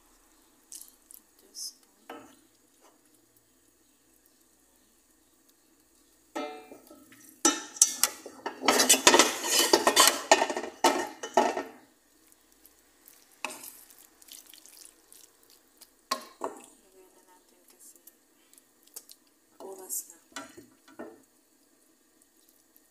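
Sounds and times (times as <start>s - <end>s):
wooden spoon scraping frying pan: 6.7s - 11.8s.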